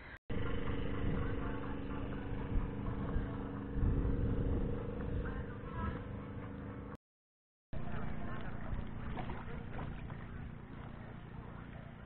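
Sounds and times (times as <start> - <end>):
low rumble: 0.3 - 7.0
motor drone: 0.3 - 7.0.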